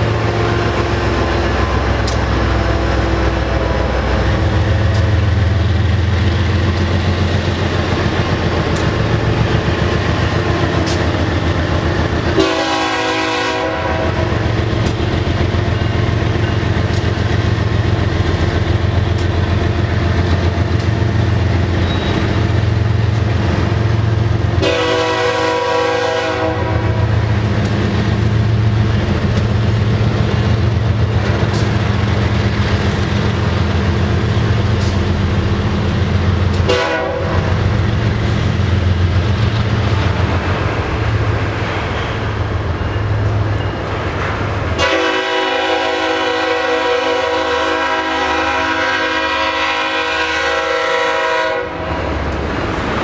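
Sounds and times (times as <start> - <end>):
wheels clicking over rail joints: 0.0 - 12.4, 14.2 - 24.6, 27.2 - 36.8
train rumble: 0.0 - 53.0
train horn blasts: 12.3 - 14.4, 24.6 - 27.2, 36.6 - 37.5, 44.8 - 51.9.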